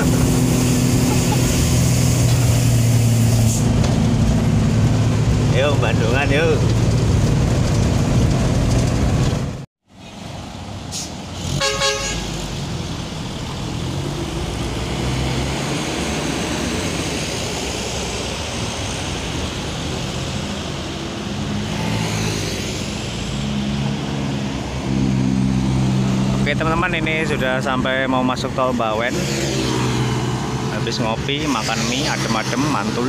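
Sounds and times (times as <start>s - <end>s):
diesel truck engine: 0.0s - 33.0s
traffic noise: 0.0s - 33.0s
truck horn toot: 11.5s - 12.4s.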